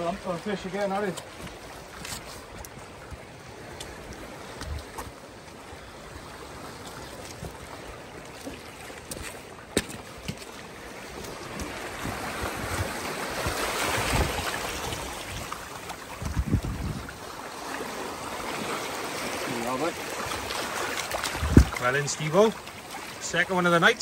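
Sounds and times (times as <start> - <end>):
small waves washing over rocks: 0.0 - 24.0
wind gusts on microphone: 11.3 - 17.3, 21.2 - 22.0.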